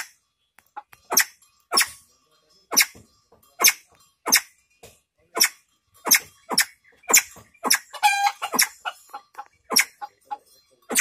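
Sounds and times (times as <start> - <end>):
fowl clucking: 6.0 - 11.0.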